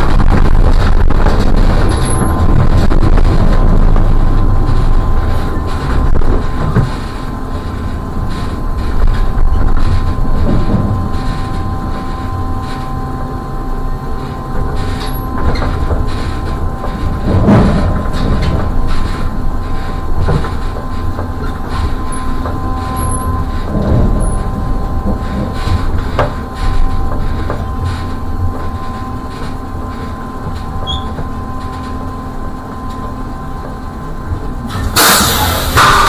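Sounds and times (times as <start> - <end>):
knocks and rattles: 0.0 - 32.1
electric drive whine: 0.0 - 36.0
trolleybus rumble: 0.0 - 36.0
loud hissing burst: 34.7 - 36.0.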